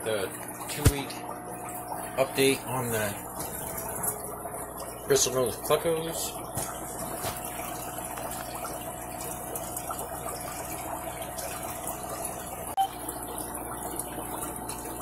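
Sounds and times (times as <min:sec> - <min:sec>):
water trickling and splashing: 0:00.0 - 0:15.0.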